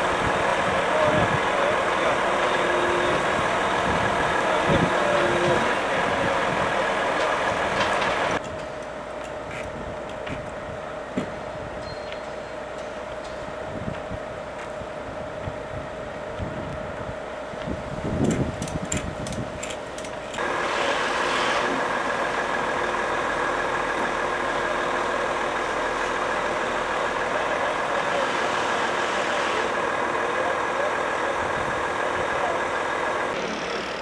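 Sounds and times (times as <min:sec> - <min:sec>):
truck diesel engine running: 0:00.0 - 0:11.8, 0:12.4 - 0:34.0
sharp metallic clicks: 0:18.2 - 0:20.5.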